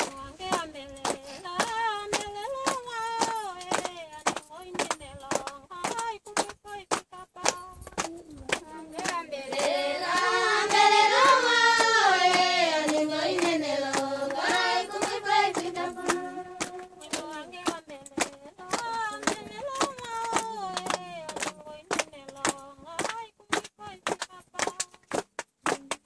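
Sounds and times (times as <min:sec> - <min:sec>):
hand claps keeping a beat: 0:00.0 - 0:26.0
group singing: 0:08.6 - 0:22.0.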